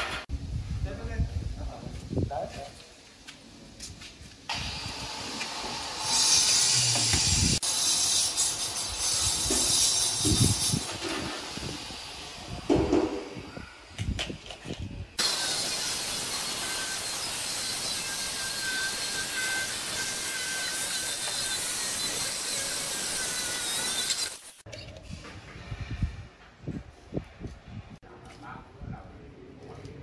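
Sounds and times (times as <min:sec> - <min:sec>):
stone saw grinding whine: 0:15.2 - 0:24.6.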